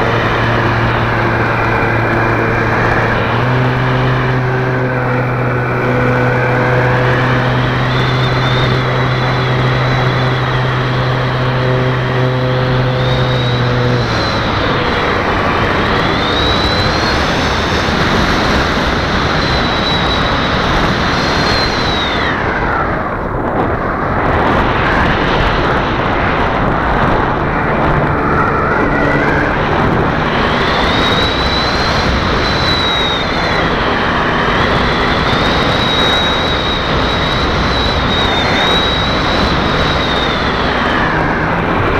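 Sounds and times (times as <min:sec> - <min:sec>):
model plane motor and propeller whine: 0:00.0 - 0:41.9
wind noise on microphone: 0:00.0 - 0:41.9.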